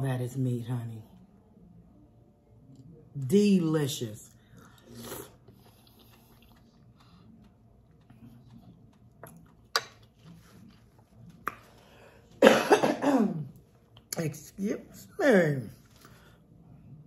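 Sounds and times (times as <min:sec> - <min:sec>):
woman coughing: 0:12.4 - 0:13.5.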